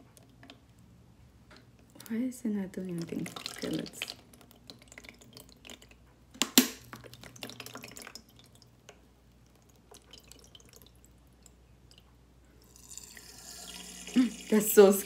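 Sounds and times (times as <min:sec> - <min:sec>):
water trickling and dripping: 0:01.6 - 0:15.0
fountain pump humming: 0:12.7 - 0:15.0.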